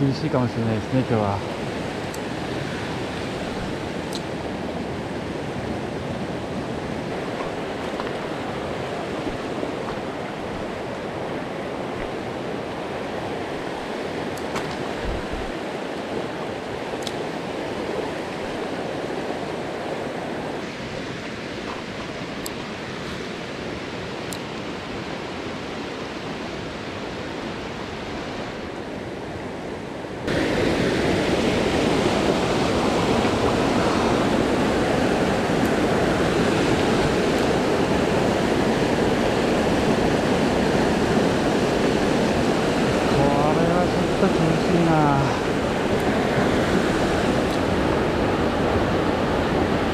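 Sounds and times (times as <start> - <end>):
churning white-water rapids: 0.0 - 49.9
stream running over stones: 42.5 - 48.4.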